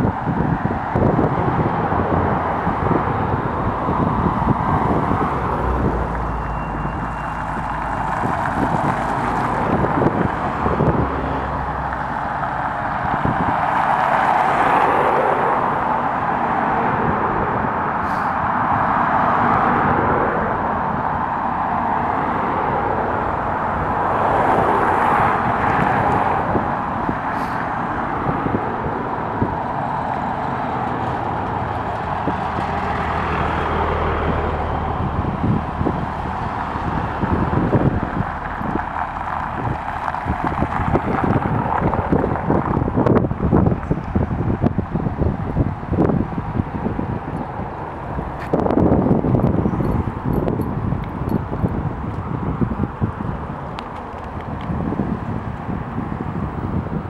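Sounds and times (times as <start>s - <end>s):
vehicles driving past: 0.0s - 57.0s
low engine rumble: 26.5s - 57.0s.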